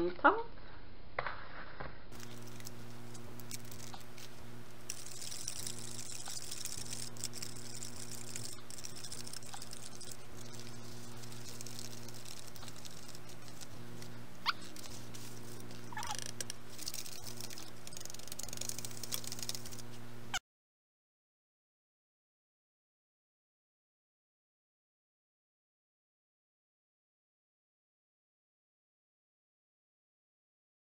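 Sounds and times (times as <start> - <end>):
steady low hum: 2.0 - 20.4
plastic squeaks: 2.2 - 20.0.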